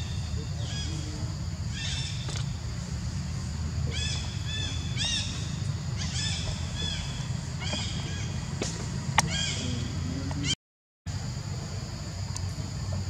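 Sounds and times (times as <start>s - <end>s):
steady low hum: 0.0s - 13.0s
high animal calls: 9.2s - 10.6s.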